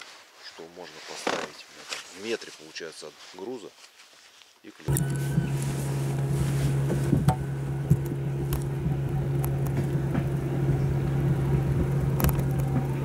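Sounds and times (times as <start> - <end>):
outboard motor running: 4.9 - 13.0.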